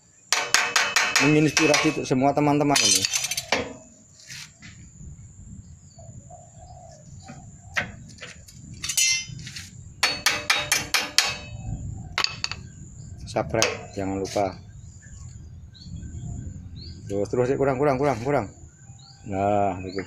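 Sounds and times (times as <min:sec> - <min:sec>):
hammer striking steel sheet: 0:00.3 - 0:02.0, 0:10.0 - 0:11.5.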